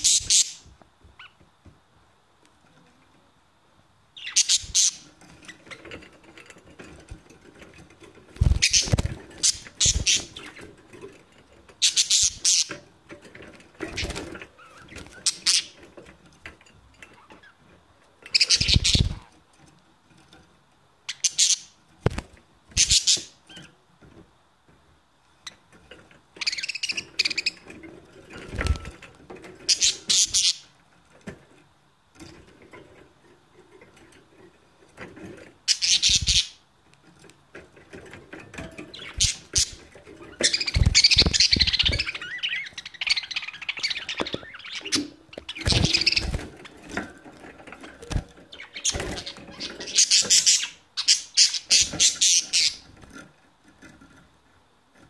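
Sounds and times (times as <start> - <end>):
budgerigars chattering: 0.0 - 0.6, 4.2 - 5.1, 8.5 - 10.6, 11.8 - 12.8, 14.0 - 15.8, 18.3 - 19.2, 21.1 - 21.7, 22.8 - 23.4, 29.7 - 30.6, 35.7 - 36.6, 48.5 - 52.8.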